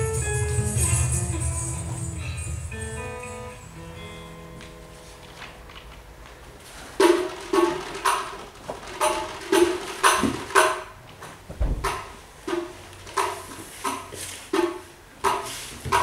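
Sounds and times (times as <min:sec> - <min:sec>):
acoustic guitar strumming chords: 0:00.0 - 0:06.1.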